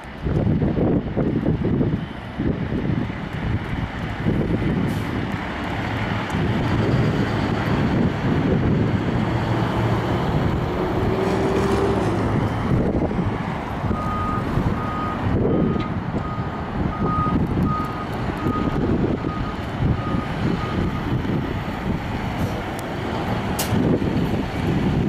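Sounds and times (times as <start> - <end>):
road traffic passing: 0.0 - 25.0
wind on microphone: 0.0 - 25.0
electronic backup alarm beeping: 13.9 - 21.2.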